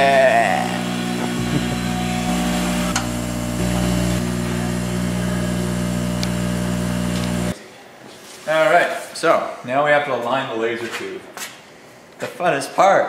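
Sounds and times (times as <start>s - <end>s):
workshop machinery droning: 0.0s - 7.6s.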